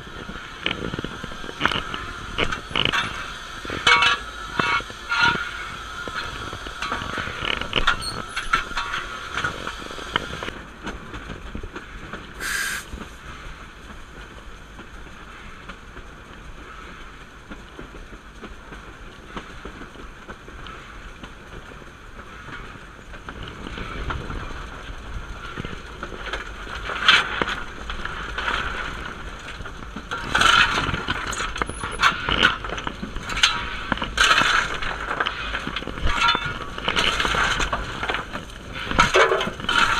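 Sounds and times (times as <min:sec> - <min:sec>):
locomotive cab rattling: 0:00.0 - 0:13.2, 0:26.0 - 0:39.9.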